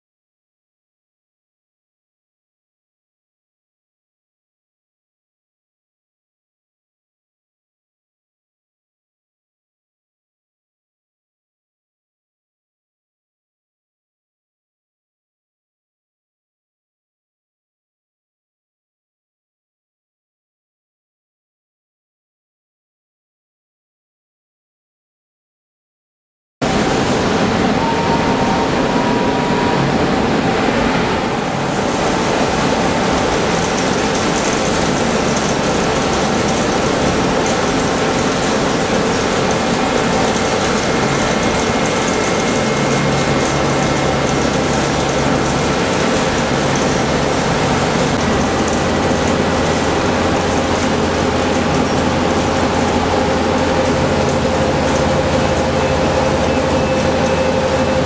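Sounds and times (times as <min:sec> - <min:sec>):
milling machine cutting steel: 0:26.6 - 0:58.0
spindle tones: 0:26.7 - 0:37.2, 0:52.0 - 0:58.0.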